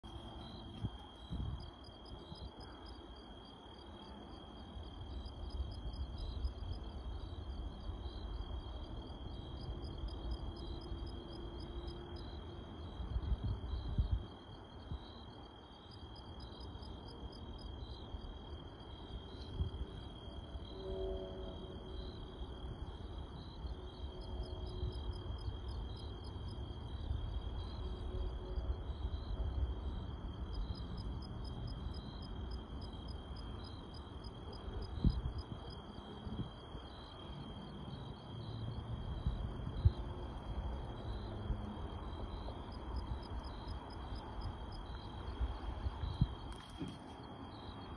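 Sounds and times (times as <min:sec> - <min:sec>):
cricket chirping: 0:00.0 - 0:47.9.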